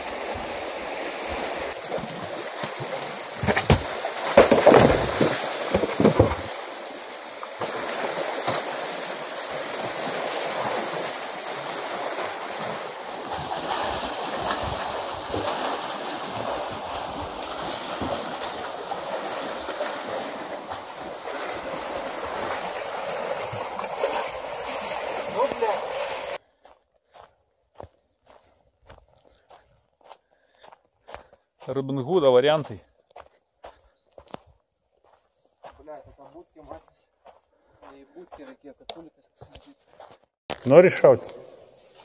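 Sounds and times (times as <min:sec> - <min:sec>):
waves lapping against rocks: 0:00.0 - 0:26.4
rustles and knocks: 0:03.4 - 0:06.6.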